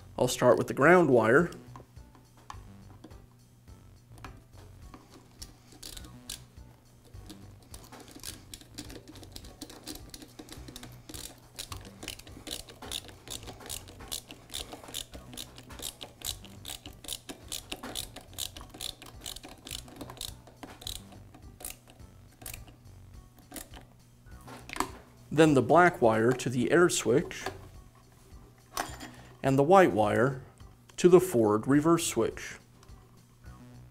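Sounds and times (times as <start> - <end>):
screwdriver clicking: 7.2 - 22.7.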